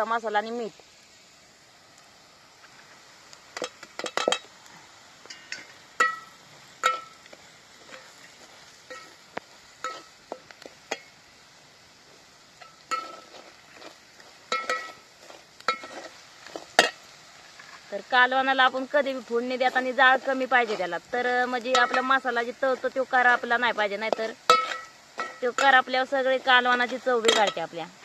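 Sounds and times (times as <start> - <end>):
faint sizzle of frying: 0.0 - 28.0
metal spatula scraping a pot: 9.8 - 11.1, 12.6 - 17.9, 21.6 - 25.8.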